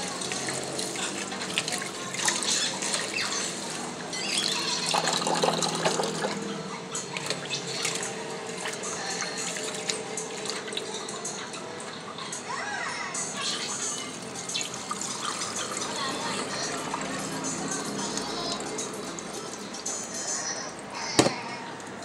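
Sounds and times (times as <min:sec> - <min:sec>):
tap water pouring into tub: 0:00.0 - 0:06.4, 0:07.2 - 0:11.0, 0:13.6 - 0:19.6.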